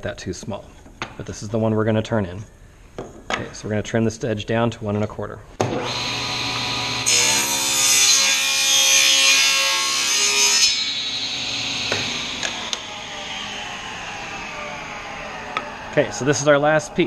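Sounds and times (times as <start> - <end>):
table saw cutting wood: 5.6 - 17.0
saw winding down: 5.7 - 17.0.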